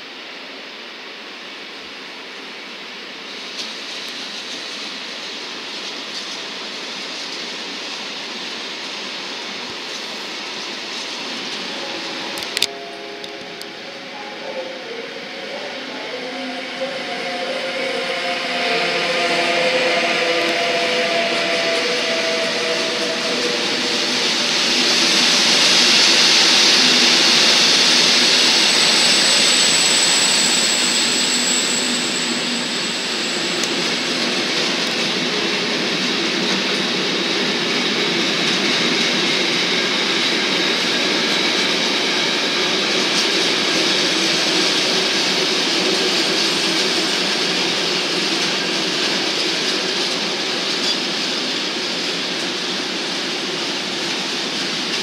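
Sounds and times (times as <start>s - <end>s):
high wheel squeal: 11.4s - 39.7s
train wheels rumbling and clattering: 16.2s - 55.0s.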